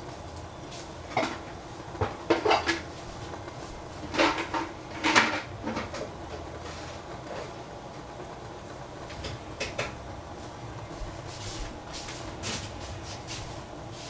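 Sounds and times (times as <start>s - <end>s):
dishes and utensils clattering: 1.1s - 2.9s, 4.0s - 6.1s.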